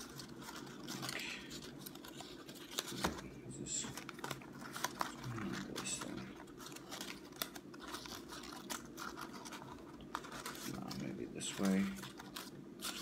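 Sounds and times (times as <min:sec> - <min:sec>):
paper rustling and crinkling: 0:00.0 - 0:13.0.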